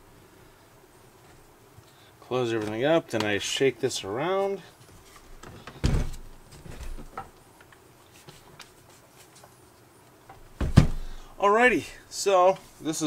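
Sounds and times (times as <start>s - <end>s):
thump: 5.8s - 6.2s, 10.6s - 11.1s.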